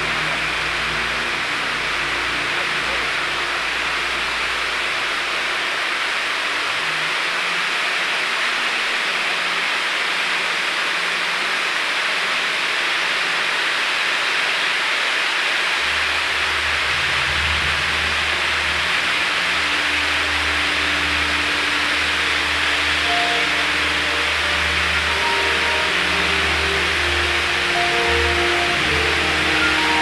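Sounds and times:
fireworks fountains hissing: 0.0s - 30.0s
low steady hum: 15.8s - 30.0s.

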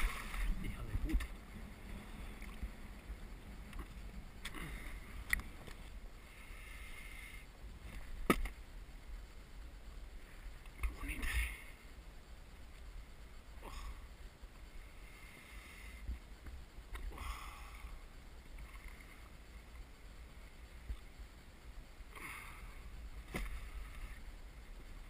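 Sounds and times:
water lapping against boat: 0.0s - 2.8s
wind rumbling on microphone: 0.0s - 25.0s.

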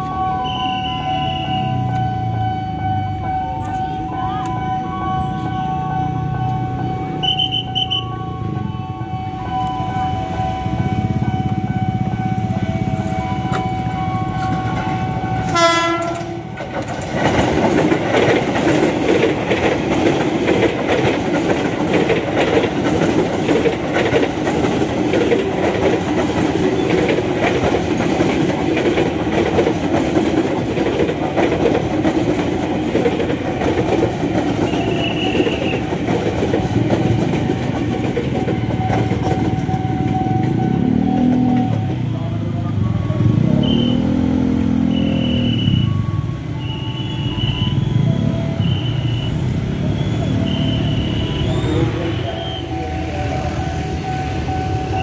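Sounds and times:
train passing with rumble: 0.0s - 55.0s
wheels clacking over rail joints: 9.5s - 43.8s
train horn blast: 10.8s - 16.5s.

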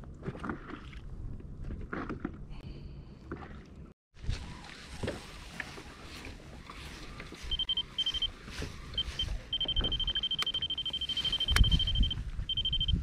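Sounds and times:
electronic alarm beeping: 7.5s - 13.0s
sharp clicks: 9.6s - 11.7s.

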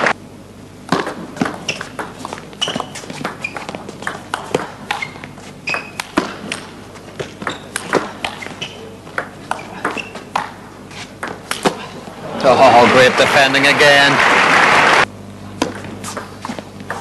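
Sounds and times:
shoe squeaks: 1.6s - 3.9s, 4.9s - 6.2s, 7.3s - 9.0s, 9.6s - 10.3s.

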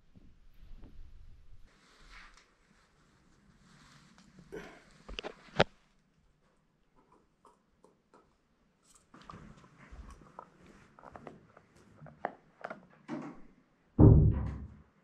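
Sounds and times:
loud low thud: 14.0s - 14.8s.

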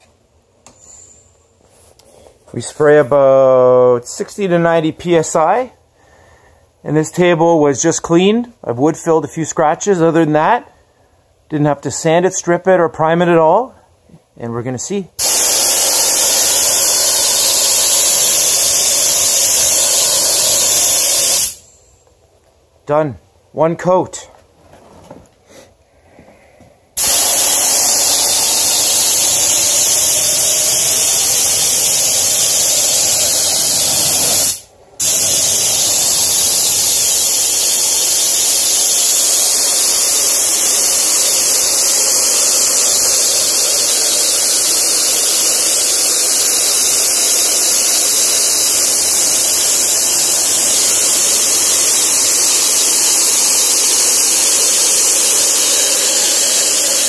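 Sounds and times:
spray gun hissing: 15.2s - 21.9s, 27.0s - 57.0s.

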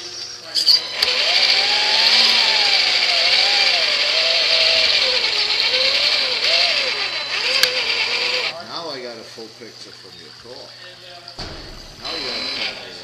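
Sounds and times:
toy truck motor whining: 0.0s - 8.5s, 12.0s - 13.0s.

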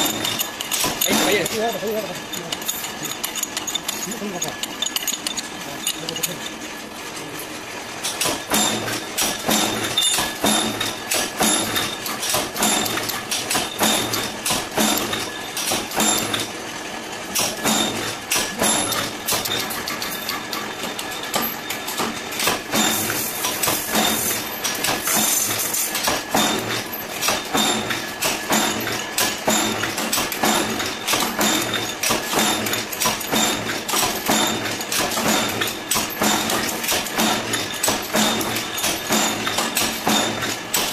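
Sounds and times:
power press clanking: 0.0s - 6.6s, 8.1s - 16.6s, 17.3s - 40.9s
motor and flywheel hum: 0.0s - 40.9s.

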